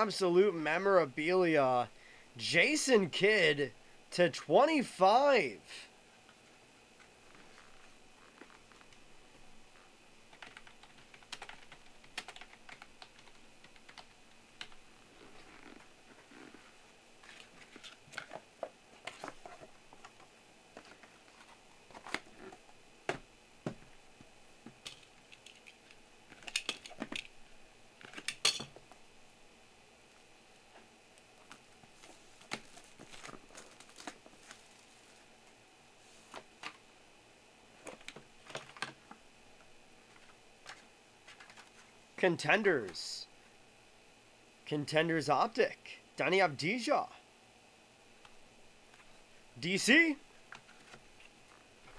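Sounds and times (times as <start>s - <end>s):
card wrapping crinkling: 31.9s - 35.3s.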